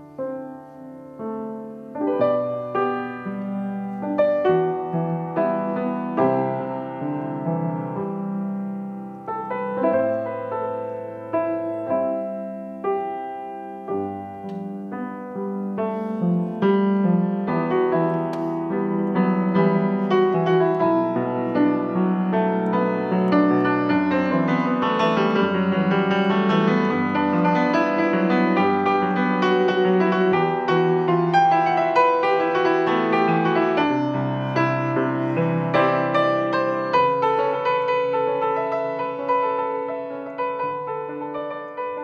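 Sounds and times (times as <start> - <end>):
grand piano playing: 0.0 - 42.0.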